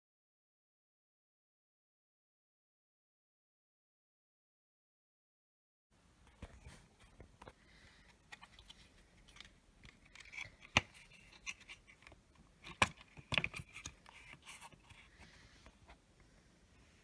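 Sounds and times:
plastic housing clicks: 8.3 - 15.0.

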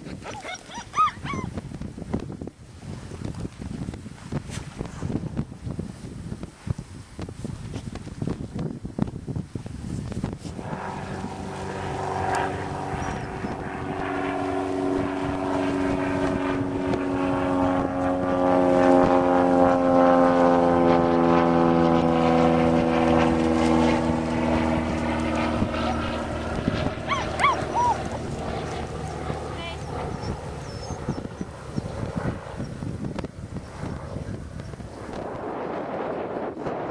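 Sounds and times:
puppy yelping: 0.2 - 1.5, 27.0 - 28.8, 29.6 - 31.5
passing vehicle engine hum: 10.5 - 31.1.

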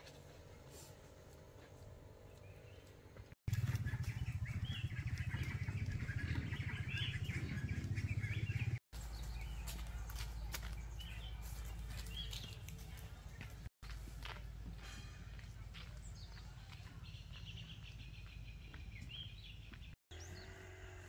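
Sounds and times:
small birds chirping: 2.2 - 13.7, 15.8 - 20.6.

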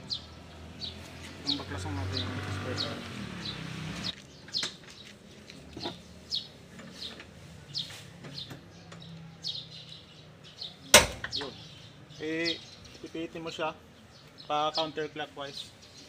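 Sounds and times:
bird chirping: 0.0 - 16.0
sharp metal clank: 11.0 - 11.5.

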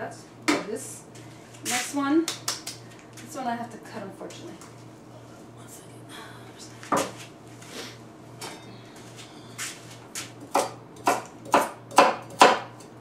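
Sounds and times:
knife chopping on wooden board: 10.2 - 12.8.

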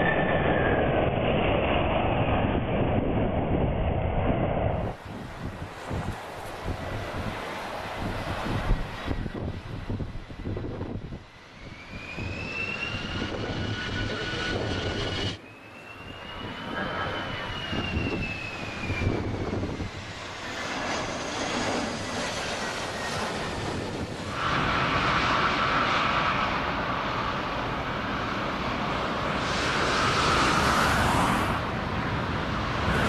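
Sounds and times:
jet engines whining: 0.0 - 33.0
steady rumble: 8.2 - 15.4.

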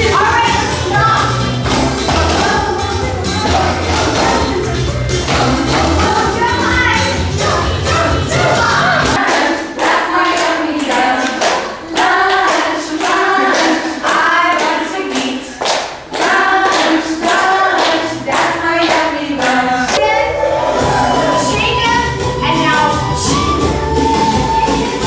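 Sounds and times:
bass: 0.0 - 9.2, 19.6 - 25.0
group singing: 0.0 - 22.4, 23.0 - 25.0
clapping beat: 9.2 - 20.0.

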